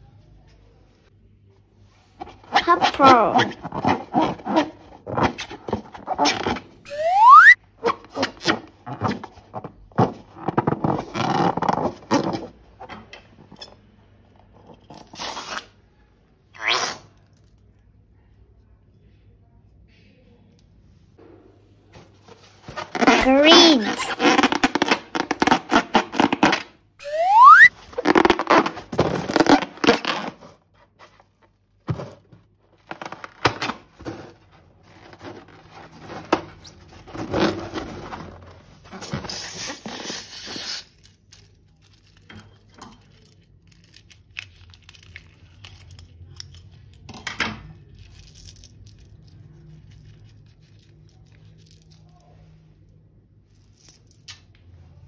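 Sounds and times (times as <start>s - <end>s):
balloons squeaking: 2.2s - 9.6s, 10.3s - 12.3s, 22.4s - 30.6s, 38.4s - 40.9s
crackles and snaps: 40.8s - 47.0s.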